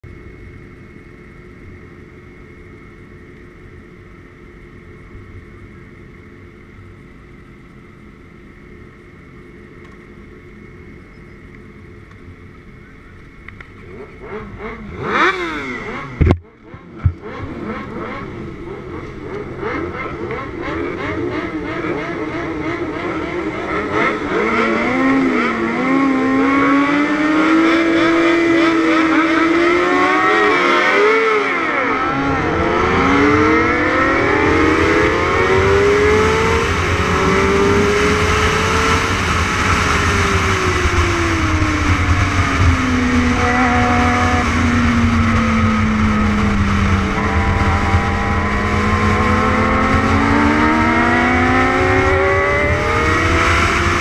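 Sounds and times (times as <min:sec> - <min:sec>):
motorcycle engines idling and revving: 0:00.0 - 0:54.0.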